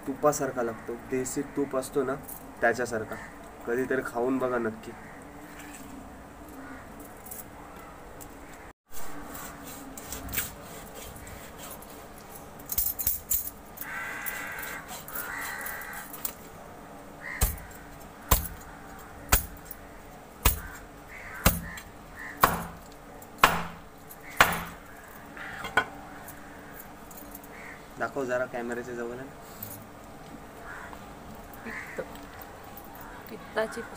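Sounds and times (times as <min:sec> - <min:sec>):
knife chopping fish on wooden board: 0:20.4 - 0:20.8, 0:21.4 - 0:21.8, 0:22.4 - 0:22.8, 0:24.4 - 0:24.8.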